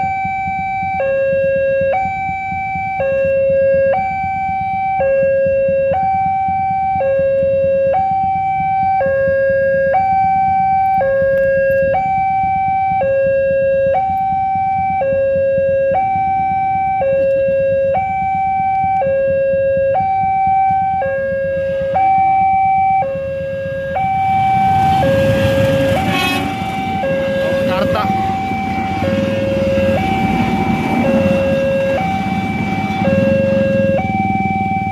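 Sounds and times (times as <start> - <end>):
two-tone crossing alarm: 0.0 - 34.9
diesel train rumbling past: 21.5 - 34.9.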